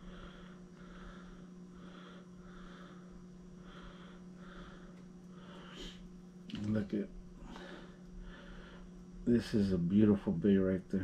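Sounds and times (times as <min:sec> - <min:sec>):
man breathing through nose: 0:00.0 - 0:06.2, 0:07.4 - 0:09.1
steady low hum: 0:00.0 - 0:11.0.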